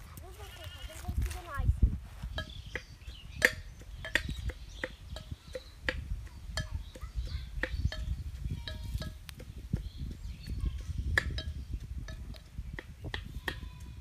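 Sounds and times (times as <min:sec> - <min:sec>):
sharp metallic clinks: 0:06.4 - 0:09.4.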